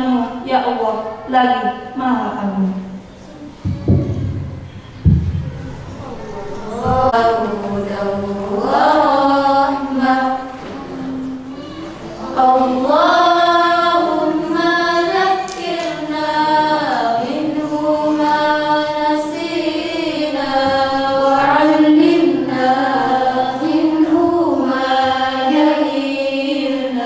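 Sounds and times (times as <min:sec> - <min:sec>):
woman chanting: 0:06.6 - 0:10.5.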